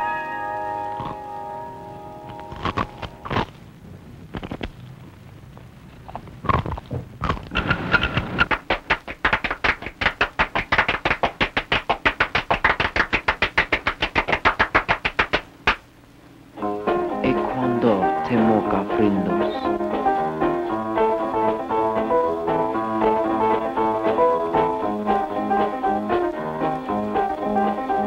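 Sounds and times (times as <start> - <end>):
hands slapping: 8.4 - 15.8.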